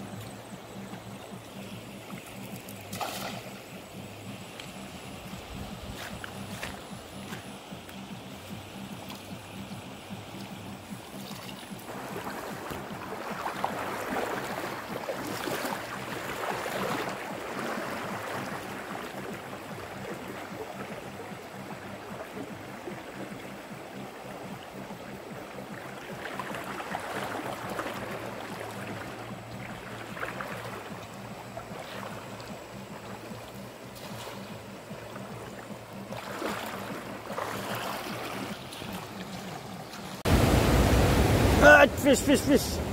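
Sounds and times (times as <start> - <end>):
person wading splashing: 1.8 - 9.7, 10.3 - 20.8, 25.5 - 42.6
river rushing: 11.2 - 19.2, 36.0 - 42.9.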